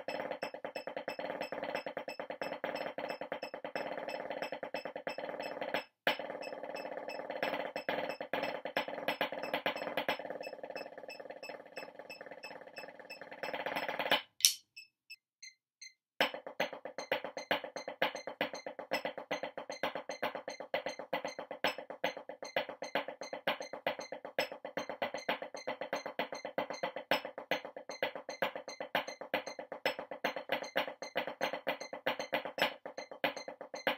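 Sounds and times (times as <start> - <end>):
drumsticks on practice pad: 14.4 - 14.6.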